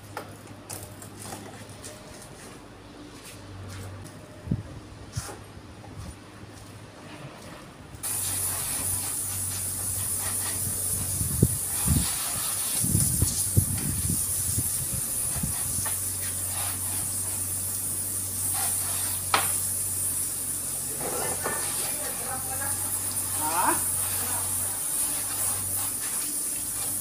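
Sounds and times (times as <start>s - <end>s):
garden hose spraying water: 8.0s - 27.0s.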